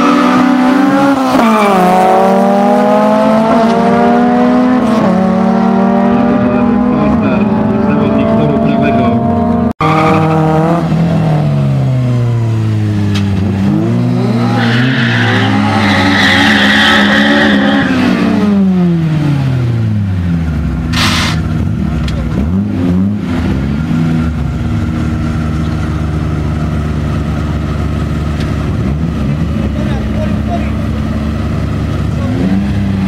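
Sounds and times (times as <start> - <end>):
car engines revving: 0.0 - 33.0
high screech: 14.4 - 18.0
short hiss: 20.9 - 21.4.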